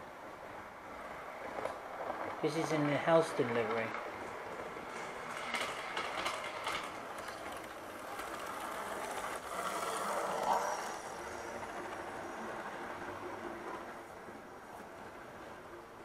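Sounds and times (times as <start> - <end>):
model train whirring and rattling: 1.5 - 14.1.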